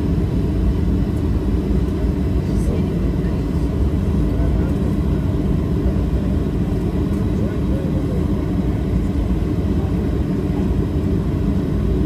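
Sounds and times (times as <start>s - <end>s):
jet airliner rumble: 0.0s - 12.0s.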